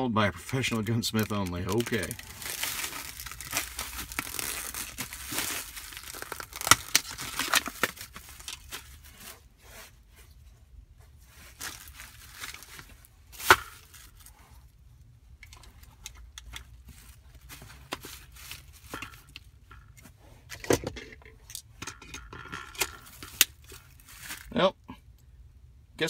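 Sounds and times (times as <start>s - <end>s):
plastic packaging crinkling and tearing: 0.2s - 9.4s, 11.4s - 14.5s, 22.6s - 24.6s.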